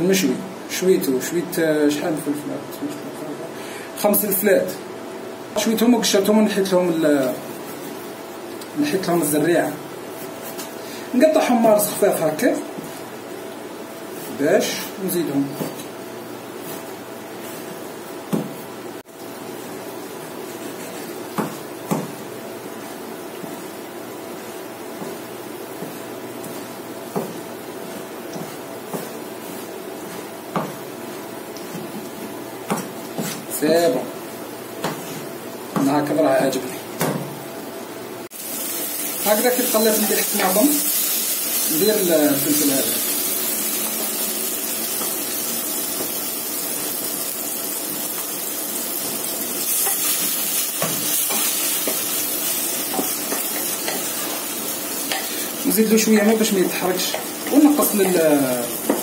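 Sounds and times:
vegetables sizzling in oil: 0:11.1 - 0:59.0
knife chopping on wooden board: 0:21.4 - 0:22.2, 0:25.8 - 0:29.2, 0:30.1 - 0:30.8, 0:32.7 - 0:33.4
steady hiss: 0:38.2 - 0:59.0.

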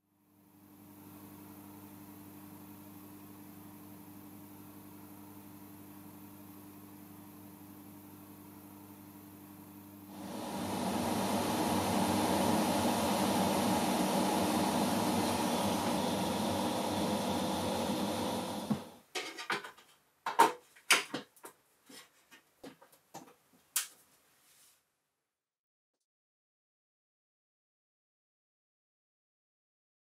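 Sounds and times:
hot air station blowing: 0:10.1 - 0:19.0.

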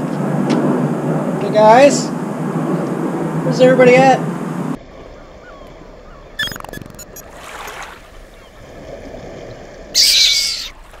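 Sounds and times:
short falling tone: 0:06.4 - 0:07.3.

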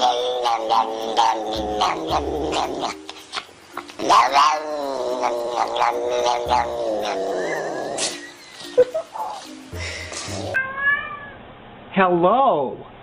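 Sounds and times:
cat yowling: 0:10.4 - 0:11.4.

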